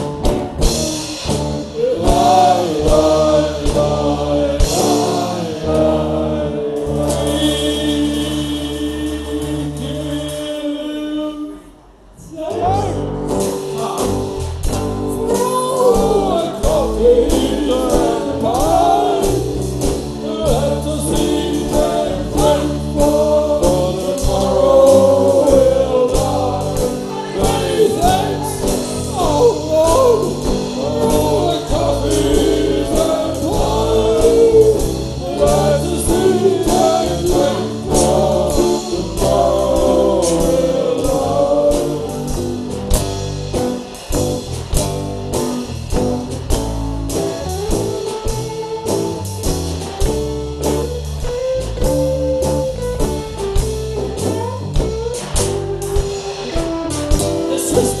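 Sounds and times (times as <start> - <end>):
drum kit: 0.0 - 10.7, 12.4 - 58.0
electric guitar: 0.0 - 10.9, 12.2 - 58.0
acoustic guitar: 0.0 - 58.0
men singing together: 1.7 - 11.3, 15.1 - 42.7, 57.4 - 58.0.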